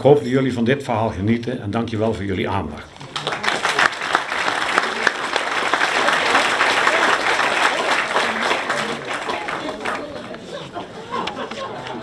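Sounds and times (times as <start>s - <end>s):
audience applauding: 3.0s - 10.7s.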